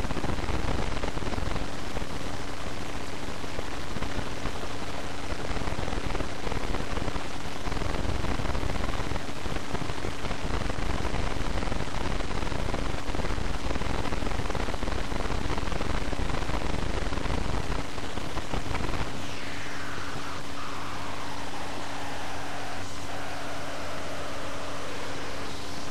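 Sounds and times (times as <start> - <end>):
steady hiss: 0.0 - 25.9
faint low hum: 16.1 - 25.9
falling whine: 17.6 - 25.9.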